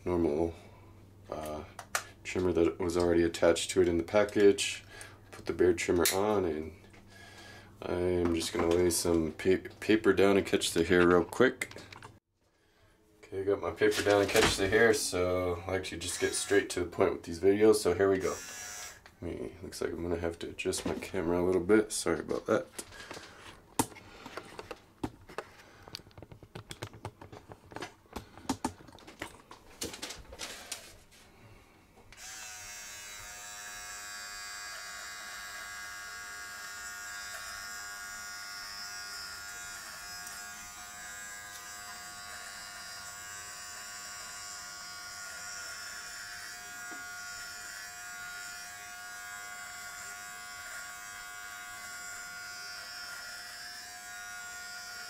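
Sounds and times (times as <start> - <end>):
hair trimmer buzzing: 16.0 - 16.8, 18.1 - 19.1, 32.1 - 55.0.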